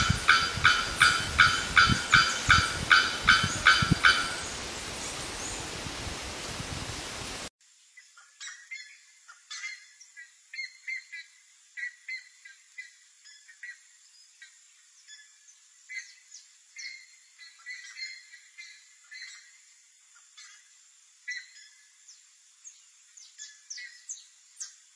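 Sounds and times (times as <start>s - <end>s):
loud harsh bird call: 0.0s - 4.7s.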